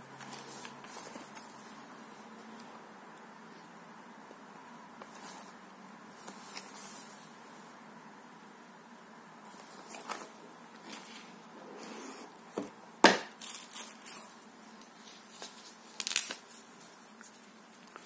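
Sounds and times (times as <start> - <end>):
nylon crinkling and rustling: 13.4 - 18.0.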